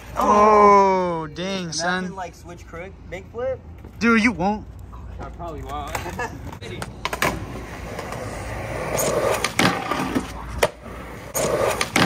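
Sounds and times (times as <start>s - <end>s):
skateboard wheels rolling on concrete: 1.7s - 12.0s
skateboard clacks: 5.6s - 12.0s.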